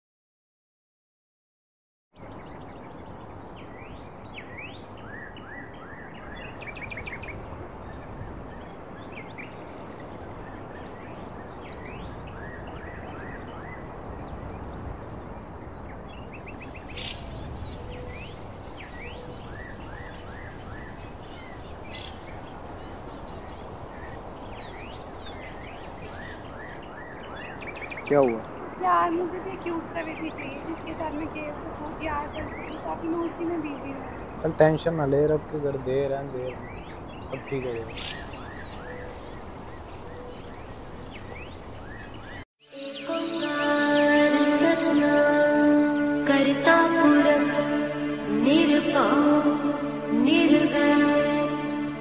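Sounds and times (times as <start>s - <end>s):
birds chirping: 16.0s - 43.5s
high insect trill: 16.3s - 36.3s, 37.4s - 42.4s
background hiss: 16.3s - 36.5s, 37.3s - 42.4s.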